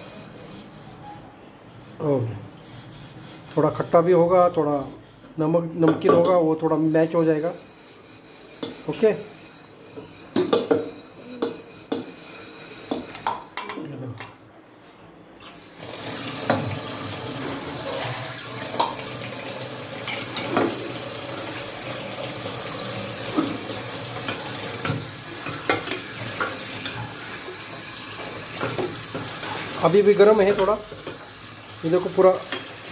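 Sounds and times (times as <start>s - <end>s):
metal spoon scraping steel pan: 6.9s - 13.2s.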